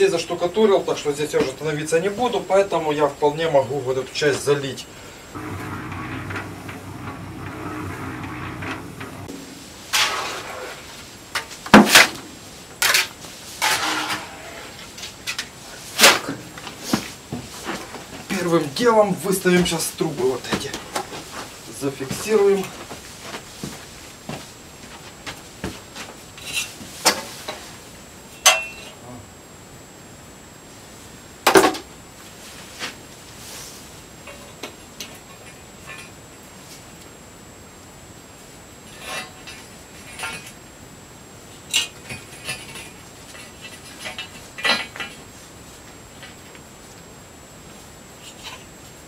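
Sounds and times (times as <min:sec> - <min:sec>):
pipes knocking and scraping on floor: 0:05.4 - 0:10.4.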